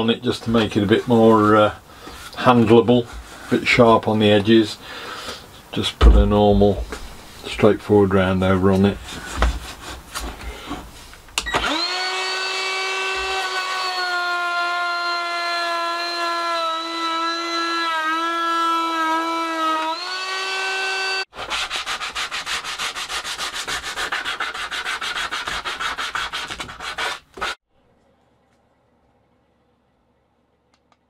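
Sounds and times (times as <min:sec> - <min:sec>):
hand sanding wood: 0:08.6 - 0:11.1, 0:11.7 - 0:27.6
trim router whining: 0:11.4 - 0:21.3.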